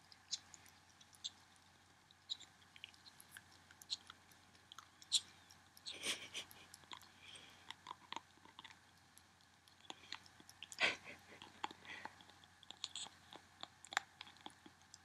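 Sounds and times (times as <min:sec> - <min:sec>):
ferret licking and lapping: 0:00.1 - 0:15.0.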